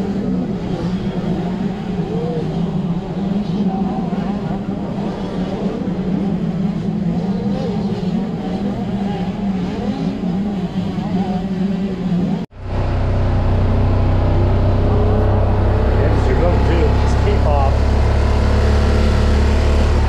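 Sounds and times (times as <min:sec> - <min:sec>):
utility vehicle engine droning: 0:00.0 - 0:20.0
wavering engine tones: 0:00.0 - 0:20.0
steady low hum: 0:11.8 - 0:20.0.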